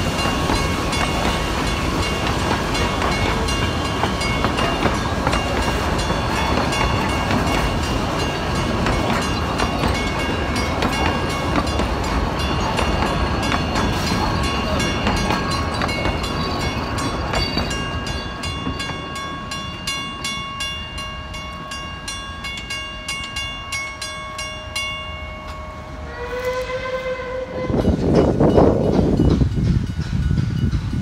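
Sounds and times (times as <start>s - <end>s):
train wheels squealing: 0.0s - 18.5s
rail clicking: 0.0s - 20.6s, 26.4s - 31.0s
steam whistle: 25.9s - 28.0s.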